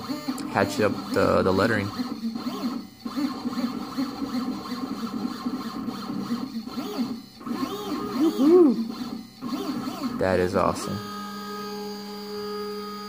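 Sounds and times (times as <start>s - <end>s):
stepper motors whining: 0.0s - 13.0s.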